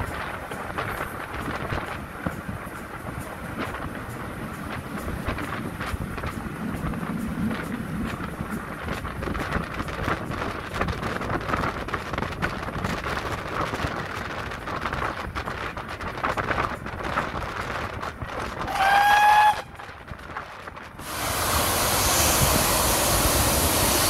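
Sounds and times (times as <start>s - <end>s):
steam train running by: 0.0s - 24.0s.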